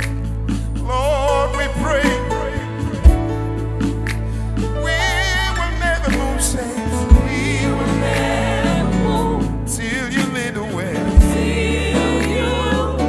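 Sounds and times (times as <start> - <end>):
gospel singers: 0.0 - 13.0
sustained bass notes: 0.0 - 13.0.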